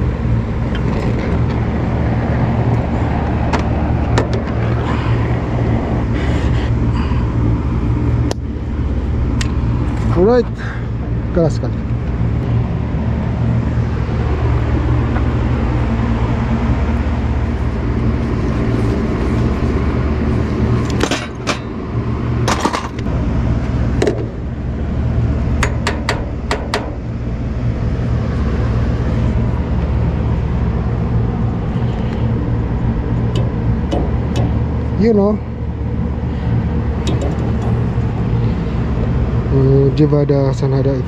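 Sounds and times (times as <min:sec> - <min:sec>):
low mechanical hum: 0:00.0 - 0:41.0.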